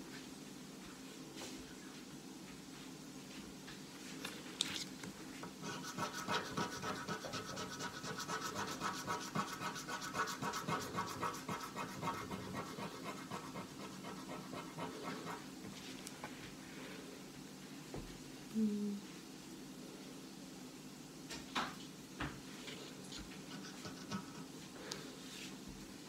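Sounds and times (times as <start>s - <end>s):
scratching lottery ticket: 5.6s - 15.5s.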